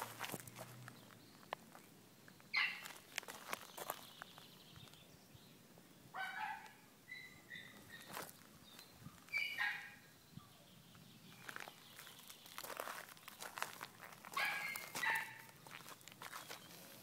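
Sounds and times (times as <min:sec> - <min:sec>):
footsteps crunching on gravel: 0:00.0 - 0:01.9, 0:02.5 - 0:05.0, 0:07.7 - 0:09.4, 0:11.3 - 0:17.0
high-pitched animal calls: 0:02.5 - 0:02.9, 0:06.2 - 0:08.2, 0:09.3 - 0:10.0, 0:14.3 - 0:15.4.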